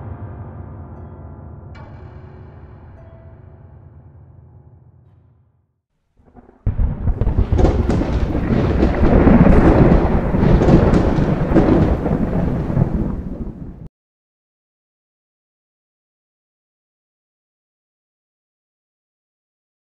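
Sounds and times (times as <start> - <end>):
thunder-like rumbling with cracks: 6.2 - 13.9.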